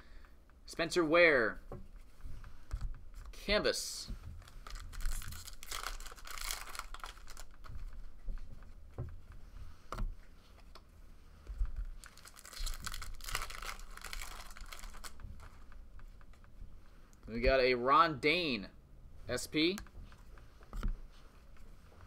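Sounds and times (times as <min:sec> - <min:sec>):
cards and wrapper crinkling: 0:04.4 - 0:08.0, 0:11.9 - 0:15.7.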